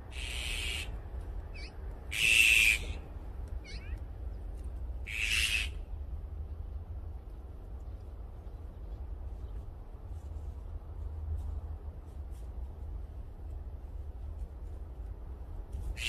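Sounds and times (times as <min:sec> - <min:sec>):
magpies giving harsh calls: 0:00.1 - 0:03.0, 0:03.6 - 0:04.0, 0:05.1 - 0:05.8.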